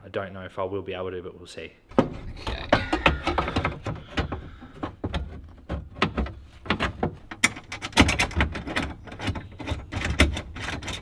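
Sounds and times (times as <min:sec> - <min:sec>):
metal plate knocking and rattling: 0:01.9 - 0:11.0.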